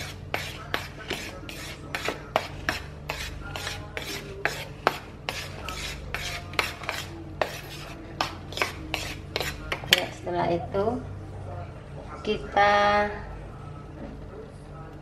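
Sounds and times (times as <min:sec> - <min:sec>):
metal spoon stirring flour in bowl: 0:00.0 - 0:10.2.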